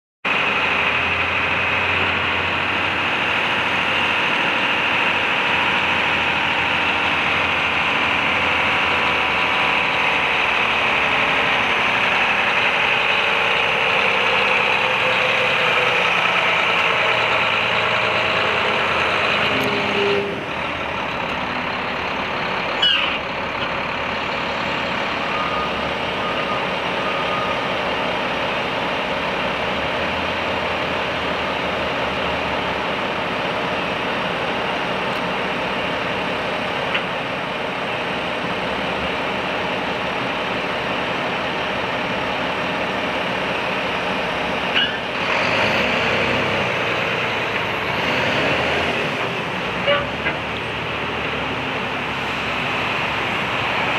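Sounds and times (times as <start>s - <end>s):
diesel truck engine running: 0.3s - 53.9s.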